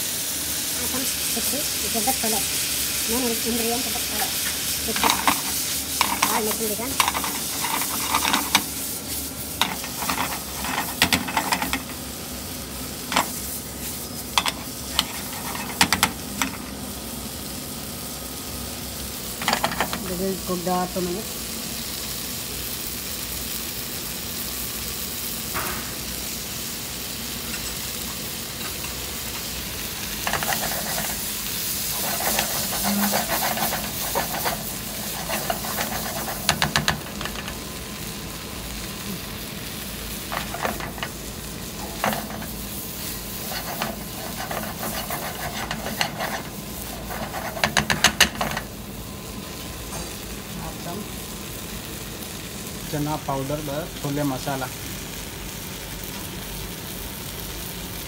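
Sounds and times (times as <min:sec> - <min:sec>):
curry sizzling in a frying pan: 0:00.0 - 0:58.0
spatula scraping a pan: 0:04.9 - 0:08.7, 0:30.2 - 0:37.6, 0:41.8 - 0:48.7.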